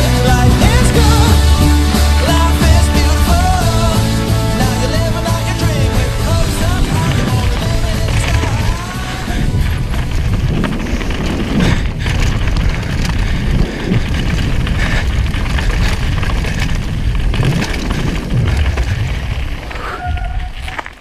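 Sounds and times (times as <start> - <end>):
bike clattering over bumps: 0.0 - 21.0
tyres crunching over stones: 0.0 - 21.0
wind rushing on microphone: 5.0 - 20.8.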